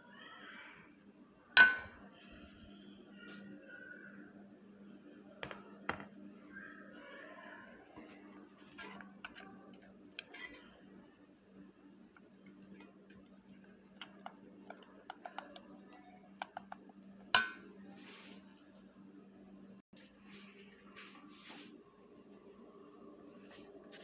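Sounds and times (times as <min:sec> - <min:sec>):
metal spoon clinking in pot: 0:01.6 - 0:02.0, 0:17.4 - 0:17.7.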